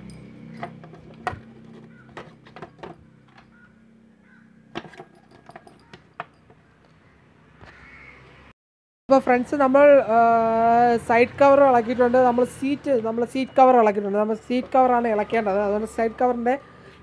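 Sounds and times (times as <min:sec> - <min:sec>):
keys jangling and clicking in lock: 0:00.0 - 0:03.6, 0:04.8 - 0:07.0.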